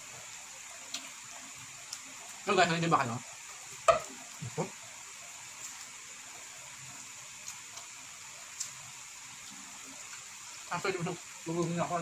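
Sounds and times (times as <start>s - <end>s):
steady background hiss: 0.0s - 12.0s
soft eating sounds: 0.2s - 12.0s.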